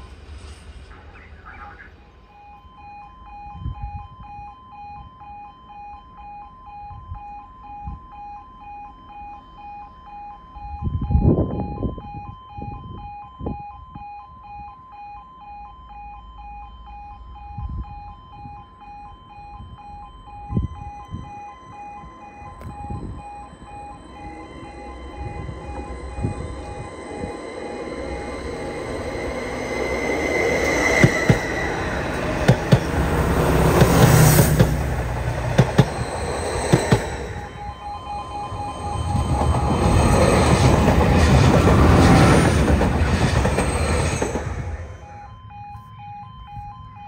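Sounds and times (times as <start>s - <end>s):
approaching train: 0.0s - 13.6s, 15.9s - 47.0s
level crossing alarm: 0.9s - 47.0s
low thuds: 22.1s - 42.0s.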